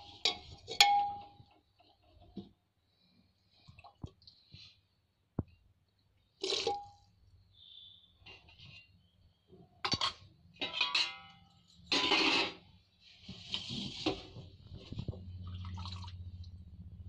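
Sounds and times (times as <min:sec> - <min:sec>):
metal spoon scraping pot: 0:00.0 - 0:01.2
low steady hum: 0:13.7 - 0:17.0.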